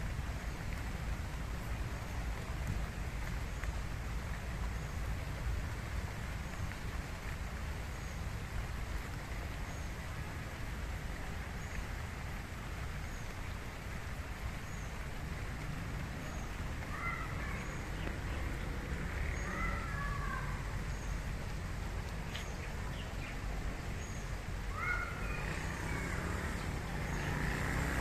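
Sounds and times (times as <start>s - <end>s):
steady rain: 0.0s - 28.0s
bird calling: 24.7s - 26.3s.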